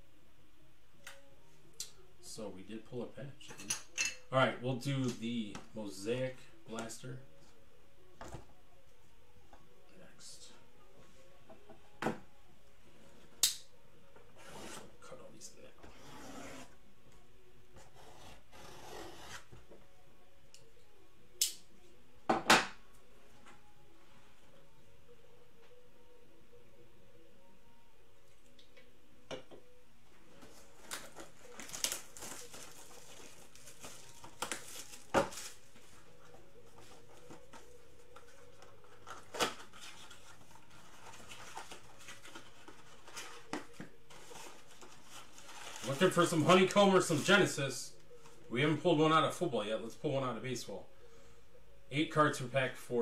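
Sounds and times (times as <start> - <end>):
wrappers and cardboard rubbing: 15.8 - 16.8, 30.4 - 47.5.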